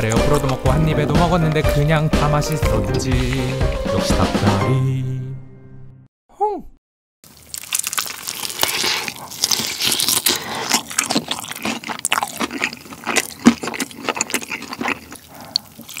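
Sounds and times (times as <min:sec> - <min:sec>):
chewing fried chicken: 0:00.0 - 0:01.3, 0:02.4 - 0:03.9, 0:07.3 - 0:16.0
crunchy clicks and crackles: 0:07.3 - 0:16.0.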